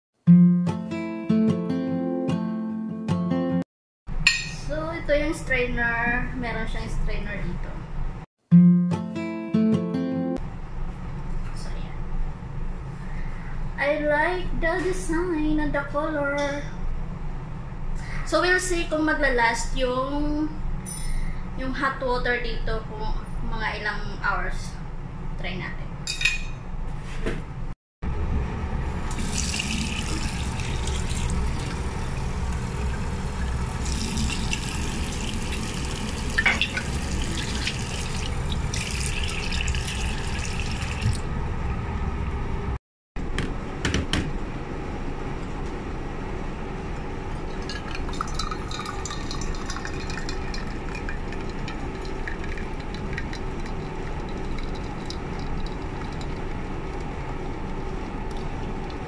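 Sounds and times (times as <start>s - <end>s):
tap water running into sink: 29.1s - 41.2s
water dispenser filling cup: 29.1s - 41.2s, 47.5s - 59.0s.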